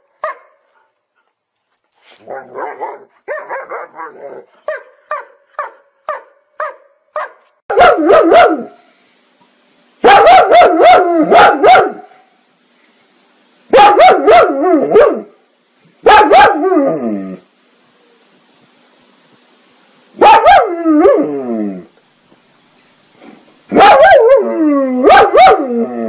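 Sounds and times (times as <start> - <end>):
dog barking: 0.2 - 0.9, 2.5 - 8.8, 10.0 - 12.2, 13.7 - 15.3, 16.0 - 16.7, 20.2 - 21.2, 23.7 - 24.4, 25.0 - 25.7.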